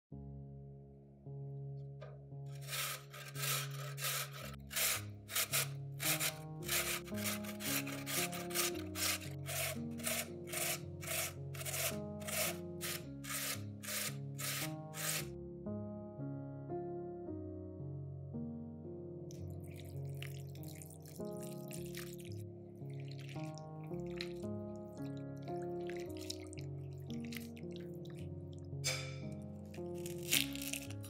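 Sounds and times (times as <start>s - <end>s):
soft background music: 0.1s - 31.0s
potato rasping on grater: 2.5s - 15.3s, 30.0s - 31.0s.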